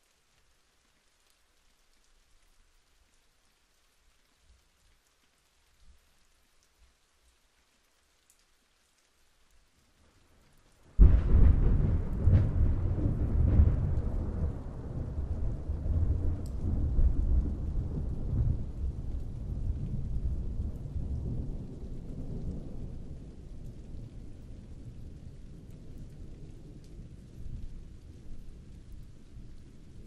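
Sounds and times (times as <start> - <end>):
raindrop ticks: 0.0 - 30.0
thunderclap and rolling rumble: 11.0 - 30.0.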